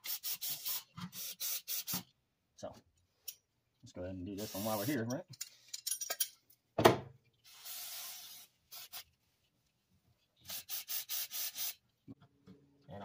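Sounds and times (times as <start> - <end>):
aerosol spray hissing: 7.5 - 9.0, 10.5 - 11.8.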